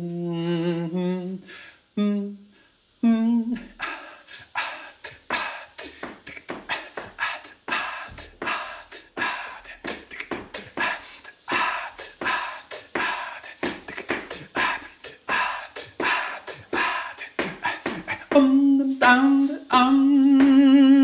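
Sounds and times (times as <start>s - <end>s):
man making breathy puffs: 3.6s - 18.3s.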